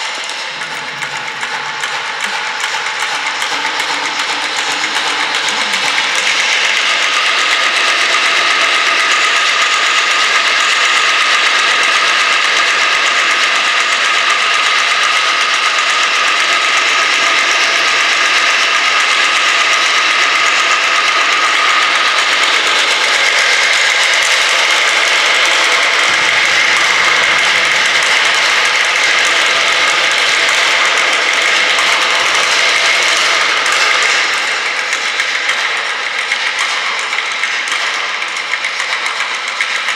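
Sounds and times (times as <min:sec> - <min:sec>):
rattling buzzing percussion: 0:00.0 - 0:39.9
low rumble: 0:00.2 - 0:07.4.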